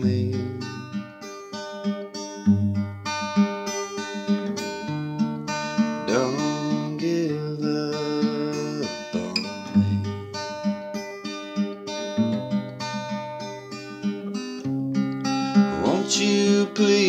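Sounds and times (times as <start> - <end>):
acoustic guitar strumming chords: 0.0 - 17.0
wavering held melody: 3.7 - 17.0.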